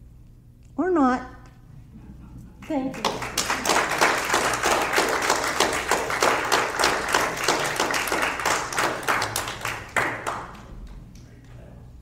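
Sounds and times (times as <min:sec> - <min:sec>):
audience applauding: 0:02.9 - 0:10.9.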